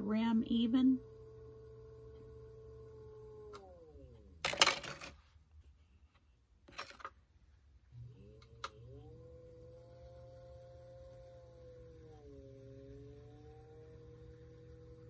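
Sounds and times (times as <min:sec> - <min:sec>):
pottery wheel motor whining: 0:00.0 - 0:04.9, 0:07.9 - 0:15.0.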